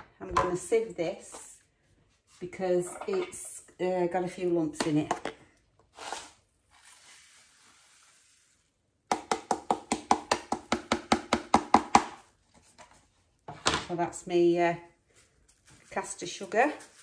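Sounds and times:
sugar poured into sieve: 5.9 - 8.9.

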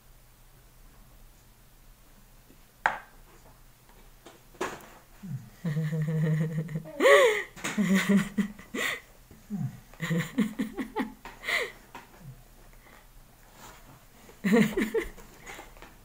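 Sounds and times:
giggle-like sounds: 5.3 - 11.7, 14.4 - 15.2.

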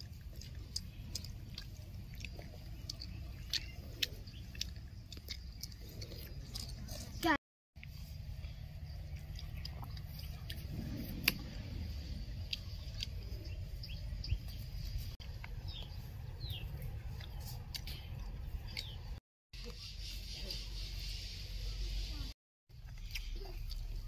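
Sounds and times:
low rumble: 8.0 - 19.1
bird chirps: 12.0 - 22.1.

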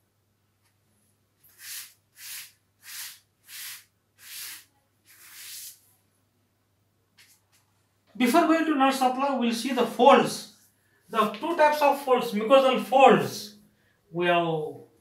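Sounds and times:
duster wiping chalkboard: 1.4 - 5.8.

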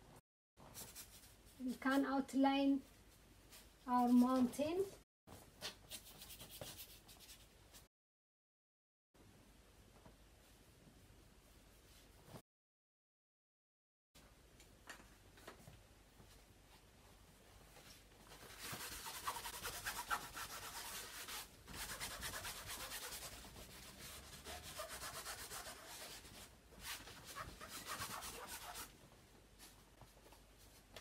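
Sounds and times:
rag scrubbing on canvas: 18.4 - 28.9.

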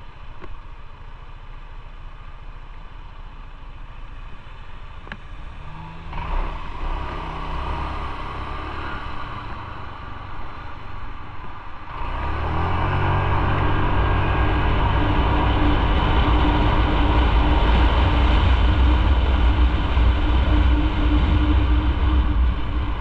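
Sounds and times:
motorcycle engine running: 0.0 - 23.0
wind noise on microphone: 11.0 - 23.0.

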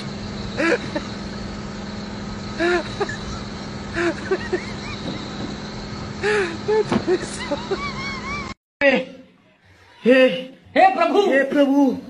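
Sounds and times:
mechanical hum: 0.0 - 8.6.

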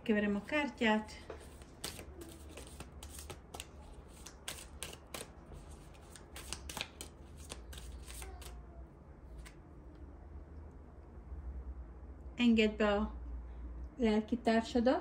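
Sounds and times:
cards being shuffled: 1.2 - 8.6, 9.3 - 9.6.

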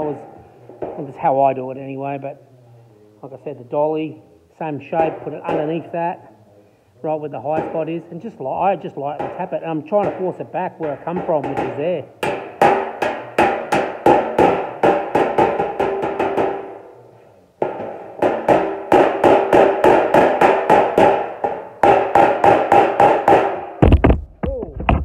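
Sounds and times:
hammer tapping on steel panel: 5.0 - 5.8, 9.2 - 16.8, 17.6 - 23.6.

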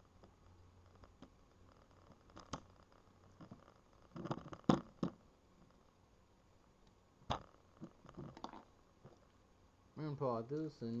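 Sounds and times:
small parts clicking and tapping: 0.2 - 5.8.

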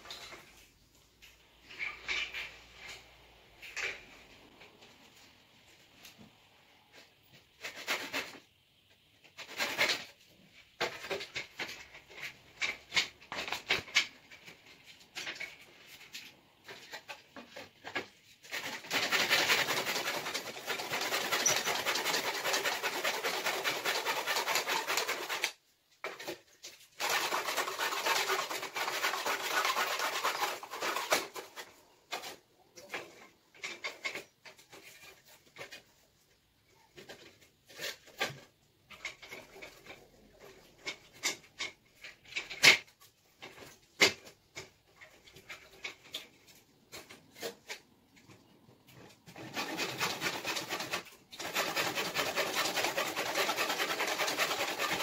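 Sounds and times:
hand saw cutting wood: 7.6 - 8.4, 9.4 - 10.1, 16.7 - 35.8, 49.0 - 55.0.

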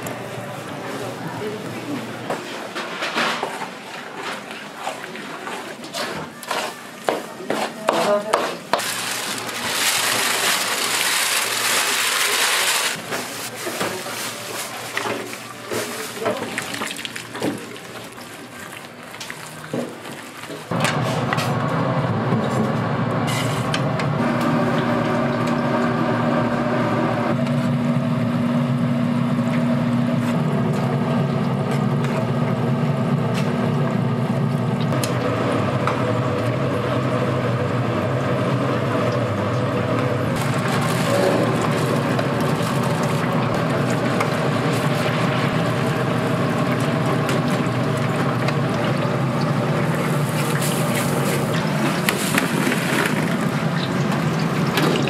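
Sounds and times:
spatula scraping batter in metal bowl: 5.9 - 8.8
chicken frying in hot oil: 8.7 - 13.0, 37.2 - 55.0.

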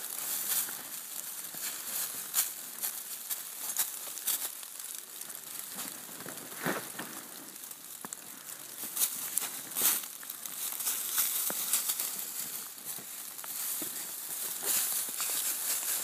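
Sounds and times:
dry leaves rustling and crackling: 0.0 - 16.0
dog sniffing through leaves: 8.8 - 16.0.

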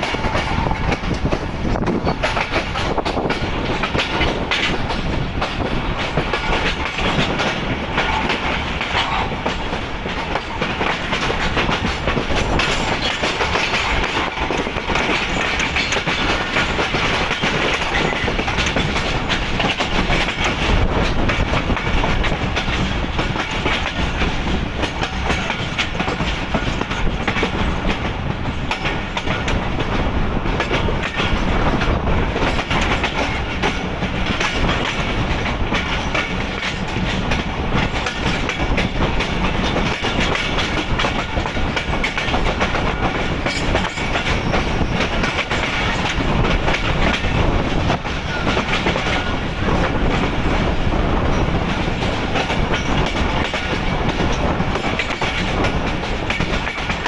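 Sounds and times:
clickety-clack over rail joints: 0.0 - 57.0
train wheels rumbling: 0.0 - 57.0.

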